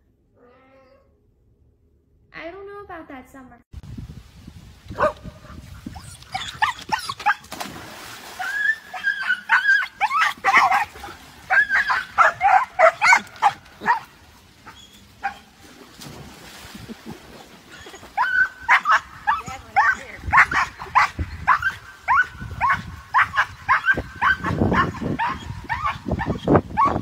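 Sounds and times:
dog barking yipping and whining: 5.0s - 5.2s, 6.0s - 7.5s, 8.4s - 15.5s, 17.7s - 27.0s.

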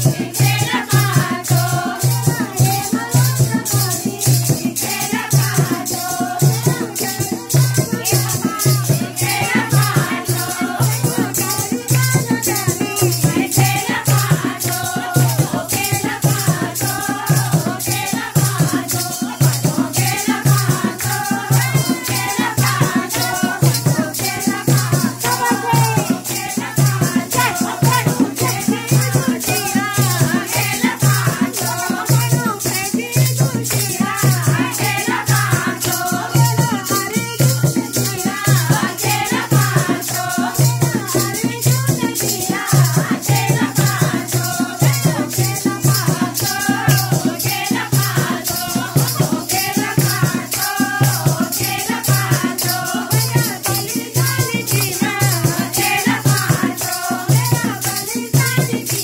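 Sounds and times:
group singing: 0.0s - 59.0s
jingling rattle percussion: 0.0s - 59.0s.

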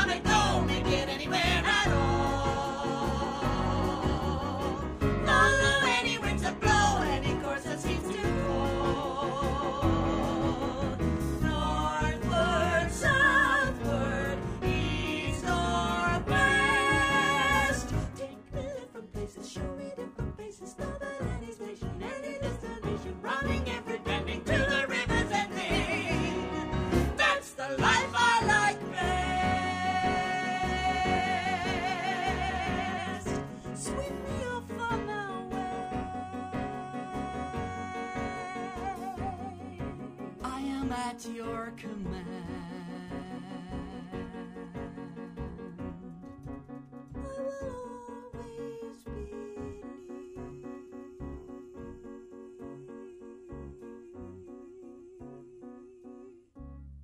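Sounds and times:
musical accompaniment: 0.0s - 57.0s
orchestra accompaniment: 24.0s - 27.4s.

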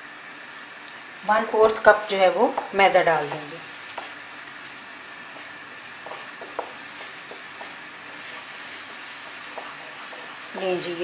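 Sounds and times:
onions sizzling in a pan: 0.0s - 11.0s
wooden spatula scraping a pan: 5.4s - 11.0s.

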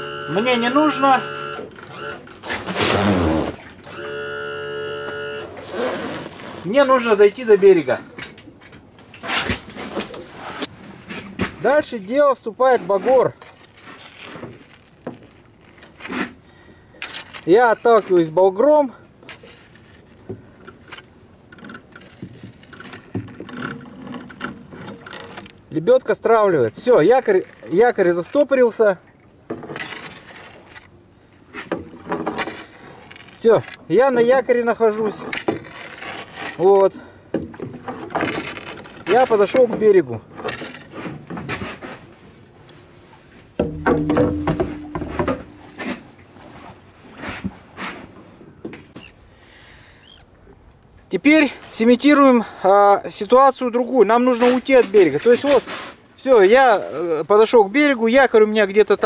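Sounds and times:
knocks and ticks on aluminium boat: 43.6s - 45.8s
metal hull ringing hum: 43.6s - 46.2s.

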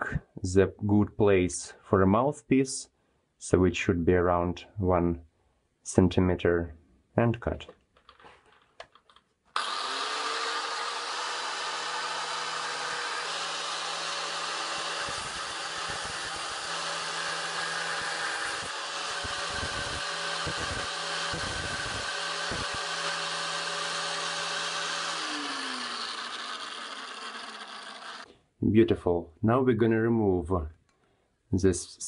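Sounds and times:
angle grinder cutting shell: 9.6s - 28.3s.

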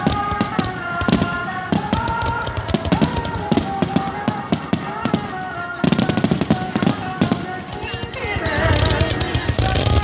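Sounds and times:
fireworks bangs and crackling: 0.0s - 10.0s.

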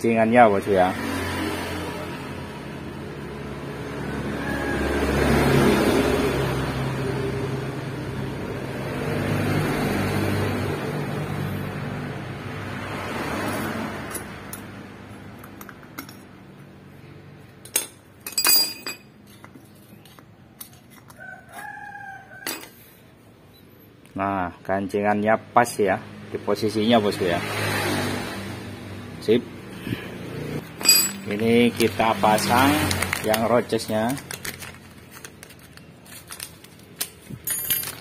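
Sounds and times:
rooster crowing: 4.1s - 5.8s, 21.1s - 22.8s.

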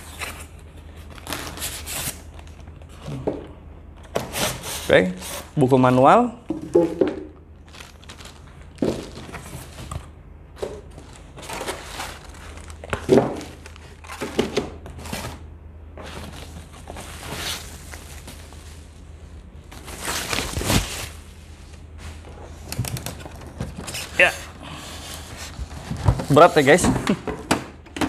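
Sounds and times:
plastic wrapping crinkling: 7.6s - 10.1s, 10.8s - 14.3s, 16.2s - 21.8s
cardboard rustling: 7.6s - 15.4s, 19.6s - 24.4s.

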